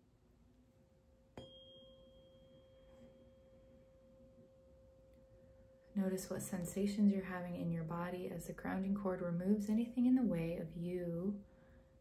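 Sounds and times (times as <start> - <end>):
tuning fork ringing: 1.3 - 5.9.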